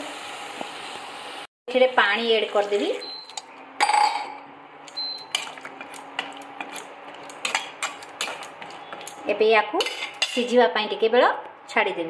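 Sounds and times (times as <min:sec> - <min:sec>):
metal spoon scraping a pan: 0:05.2 - 0:10.5.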